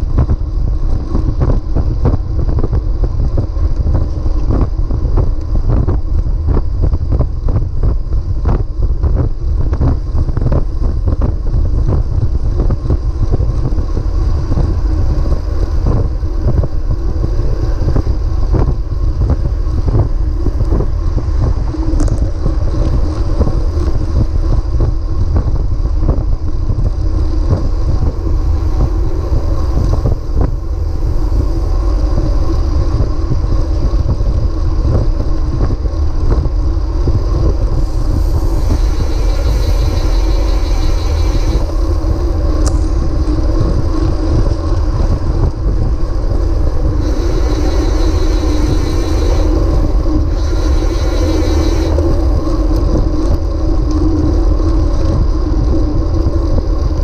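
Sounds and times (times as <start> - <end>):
bike tyres on asphalt: 0.0 - 57.0
wind noise on microphone: 0.0 - 57.0.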